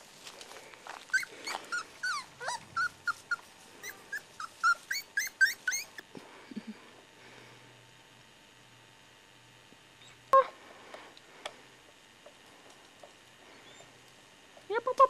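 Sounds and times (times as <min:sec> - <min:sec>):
puppies squeaking and whimpering: 0:01.1 - 0:06.0.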